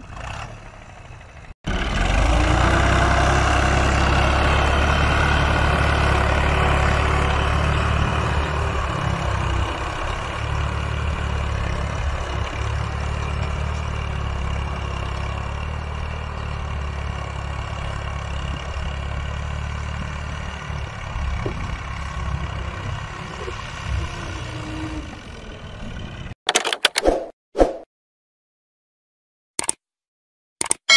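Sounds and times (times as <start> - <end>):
tractor diesel engine running: 0.0 - 26.4.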